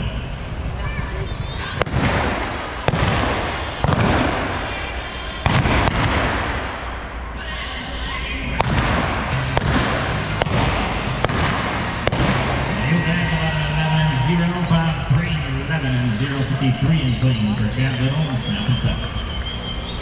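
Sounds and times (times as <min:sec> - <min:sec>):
gunshots echoing indoors: 0:01.8 - 0:07.3, 0:08.6 - 0:12.8.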